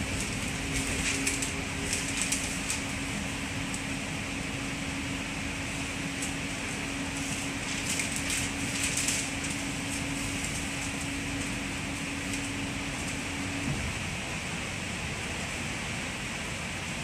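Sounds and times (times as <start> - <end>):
train cabin rumble and hiss: 0.0 - 17.0.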